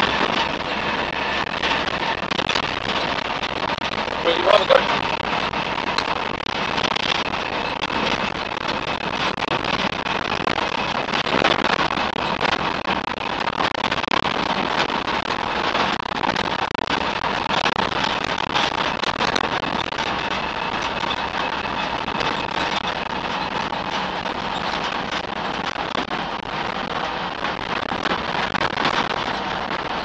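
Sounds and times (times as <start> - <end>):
truck engine and road noise: 0.0 - 30.0.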